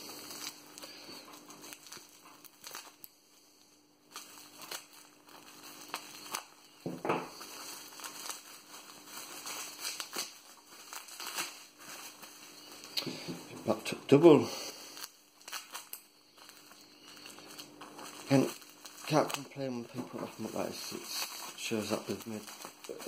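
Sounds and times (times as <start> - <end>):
bubble wrap crinkling: 0.0 - 23.0.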